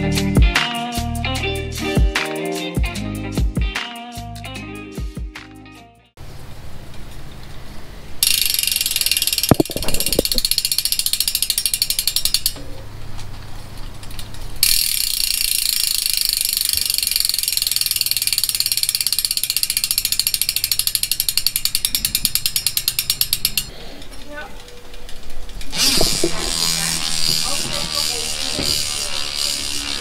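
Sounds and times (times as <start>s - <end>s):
bicycle freehub clicking: 8.2s - 30.0s.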